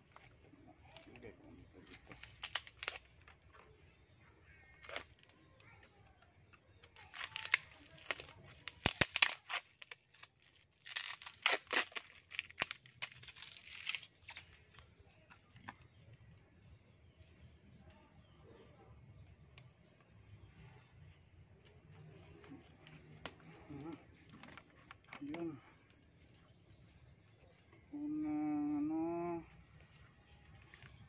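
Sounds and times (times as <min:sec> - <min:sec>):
packing tape tearing: 0:02.0 - 0:03.3, 0:04.8 - 0:05.4, 0:06.8 - 0:14.7.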